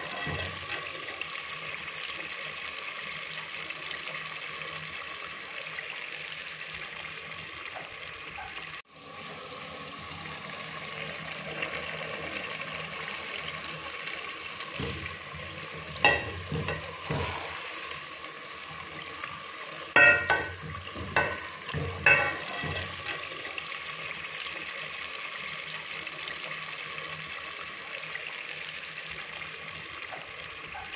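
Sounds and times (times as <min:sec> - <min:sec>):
curry sizzling in a pot: 0:00.0 - 0:30.9
ladle clinking against metal pot: 0:16.0 - 0:16.9, 0:20.0 - 0:23.0.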